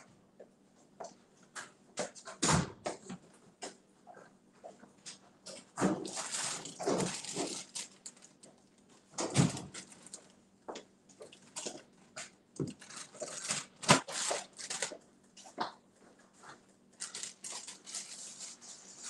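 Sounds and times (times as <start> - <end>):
rustling: 6.1 - 10.4, 17.0 - 19.0.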